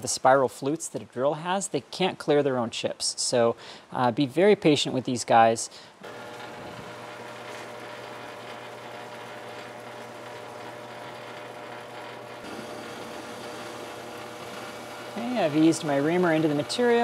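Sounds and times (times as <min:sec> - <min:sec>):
metal lathe motor hum: 0:06.0 - 0:17.0.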